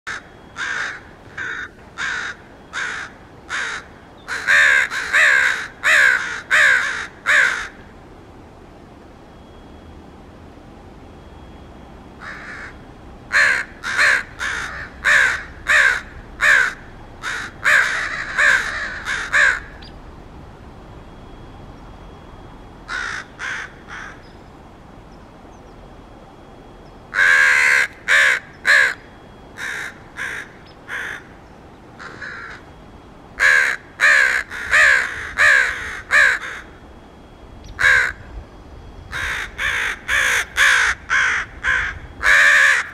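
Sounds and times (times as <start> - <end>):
crows cawing: 0.1 - 7.9, 12.2 - 19.8, 22.9 - 24.2, 27.1 - 31.4, 32.0 - 32.7, 33.4 - 36.8, 37.8 - 38.2, 39.1 - 42.9.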